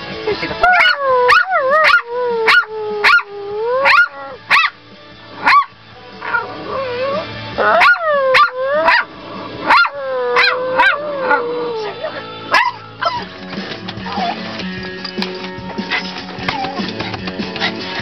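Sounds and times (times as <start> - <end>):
puppy yipping: 12.5 - 13.3, 14.0 - 14.5, 15.9 - 17.1
puppy whining: 13.0 - 13.3, 14.0 - 14.6, 15.9 - 17.8.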